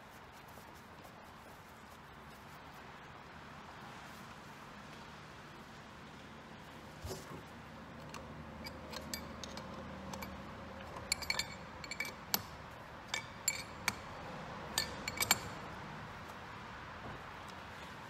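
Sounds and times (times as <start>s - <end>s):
wrenches clinking on metal fittings: 8.0s - 15.8s.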